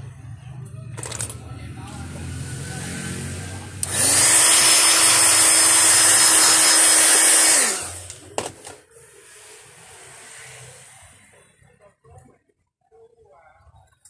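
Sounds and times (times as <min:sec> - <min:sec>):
heat gun motor whine: 0:03.8 - 0:08.3.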